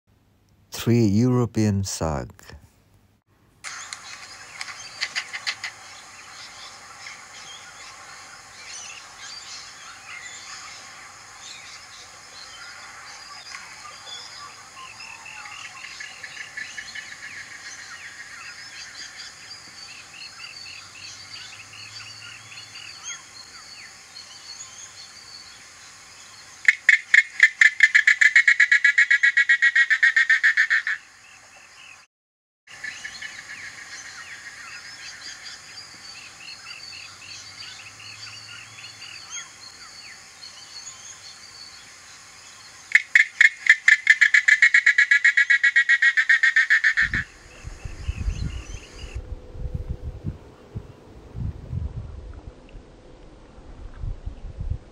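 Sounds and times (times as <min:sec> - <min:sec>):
seabirds rattling clicks: 0:03.7 - 0:05.8.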